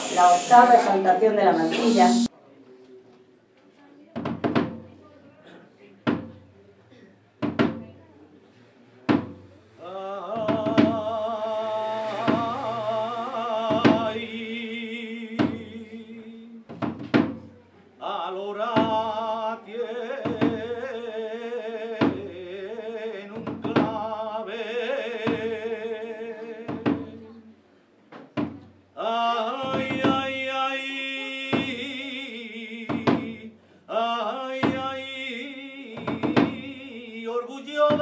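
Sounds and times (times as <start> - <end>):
slow regular thump: 9.1 - 9.6, 16.7 - 17.6, 28.1 - 28.8
man singing unaccompanied: 9.7 - 17.4, 18.0 - 27.4, 28.9 - 38.0.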